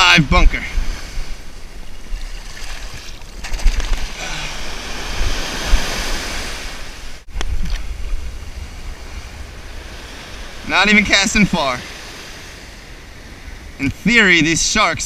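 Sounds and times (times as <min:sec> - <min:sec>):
ocean surf breaking: 0:00.0 - 0:15.0
wind buffeting microphone: 0:00.1 - 0:14.0
close water splashing: 0:01.0 - 0:07.8.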